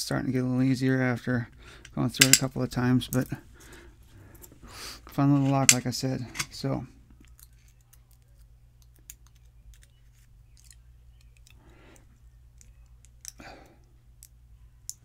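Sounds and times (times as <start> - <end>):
low steady hum: 0.0 - 15.0
small metallic clicks and scrapes: 7.2 - 11.6.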